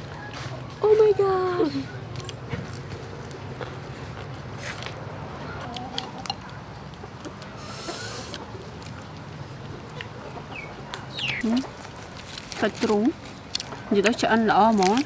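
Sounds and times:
wet chewing clicks and smacks: 1.9s - 7.5s, 8.1s - 12.2s, 13.2s - 14.2s.

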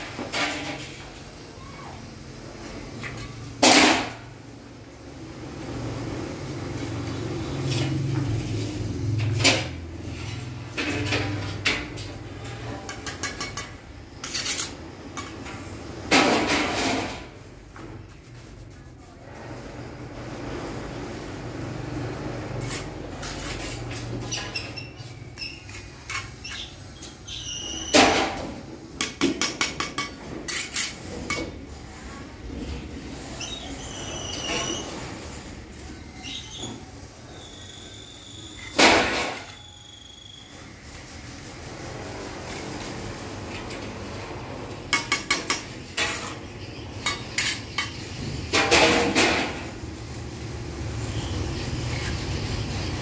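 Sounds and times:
trowel tapping bricks: 12.8s - 14.7s, 29.0s - 31.5s
trowel scraping mortar: 12.8s - 15.4s, 22.4s - 27.8s, 29.0s - 31.6s, 44.9s - 48.2s.

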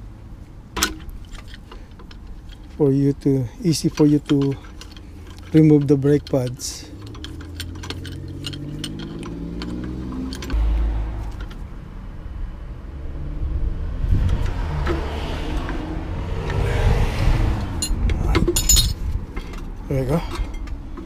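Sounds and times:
vehicle engine rumbling: 0.0s - 21.0s.

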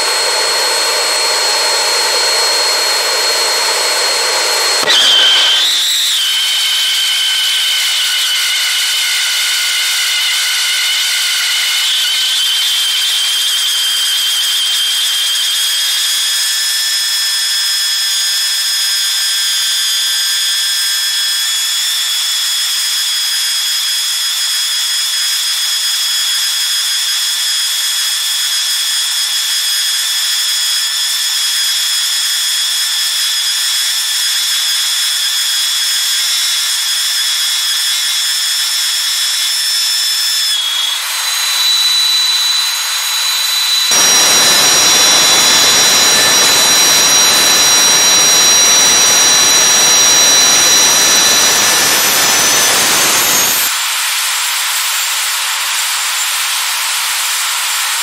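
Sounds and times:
jet engine whining: 0.0s - 16.6s, 37.7s - 53.8s
jet roar with low rumble: 43.9s - 53.7s.

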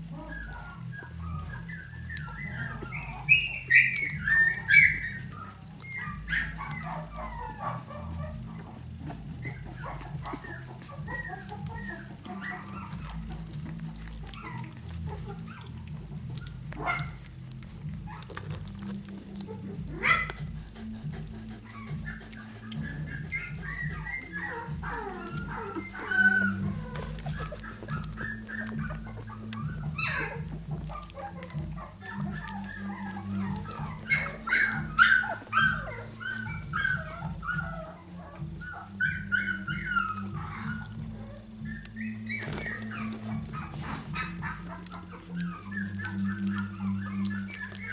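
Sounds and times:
puppies squeaking and whimpering: 0.0s - 47.9s.

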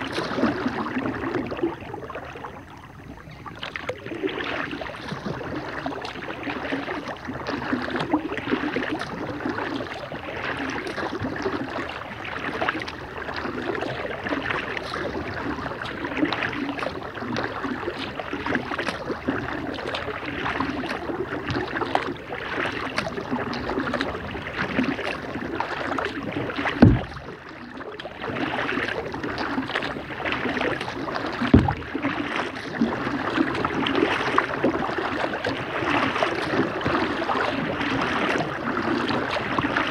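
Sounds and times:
paddle strokes splashing water: 0.0s - 39.9s
short low thumps: 26.8s - 27.4s, 31.4s - 32.0s.

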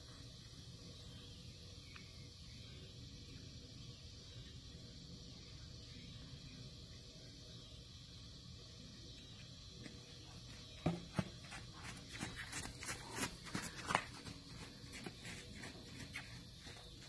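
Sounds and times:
horse hooves on wet dirt: 10.5s - 17.0s.

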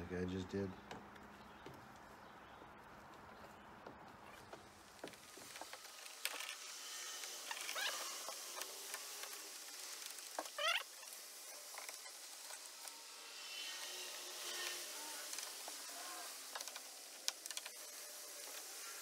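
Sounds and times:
short rising squeaks: 5.2s - 19.0s.

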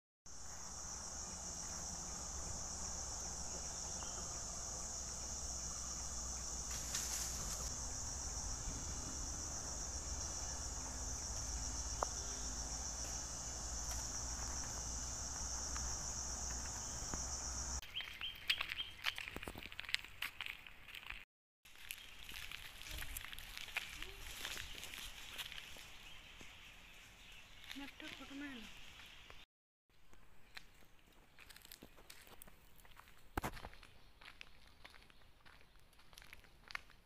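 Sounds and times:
high-pitched insect drone: 0.3s - 17.8s
low insect buzz: 0.3s - 17.8s.

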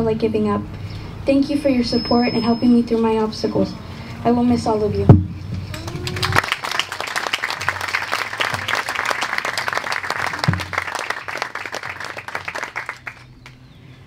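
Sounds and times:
audience applauding: 5.7s - 13.6s.

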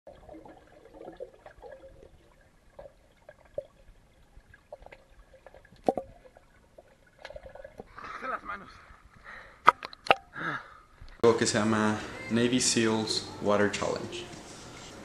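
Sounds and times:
muffled underwater wash: 0.1s - 9.4s.

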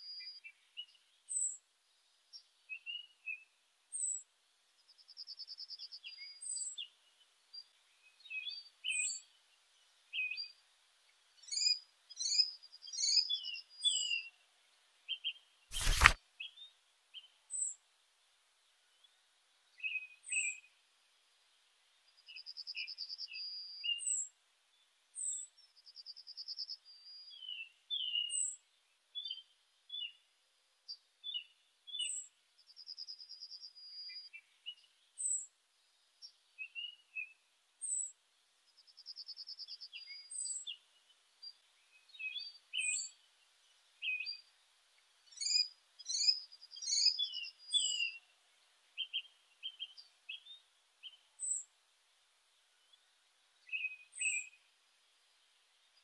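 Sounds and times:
birds chirping: 45.3s - 48.2s.

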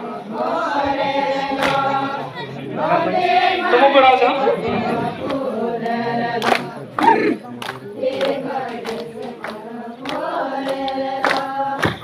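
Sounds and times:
group singing together: 0.0s - 12.0s
sharp rhythmic beats: 3.7s - 12.0s.

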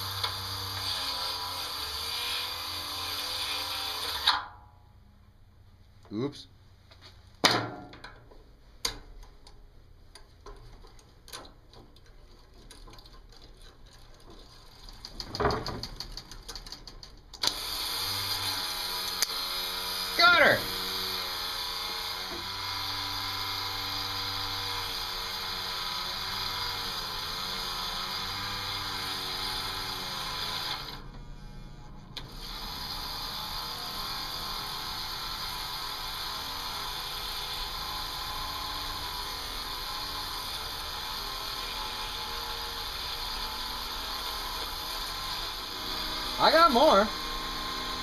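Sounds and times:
small electric motor running: 0.0s - 4.4s, 17.4s - 31.6s, 32.2s - 48.0s.

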